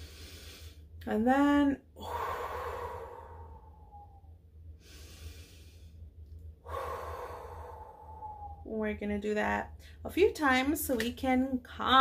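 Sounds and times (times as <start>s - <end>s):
woman breathing slowly: 0.0s - 1.0s, 1.9s - 8.7s.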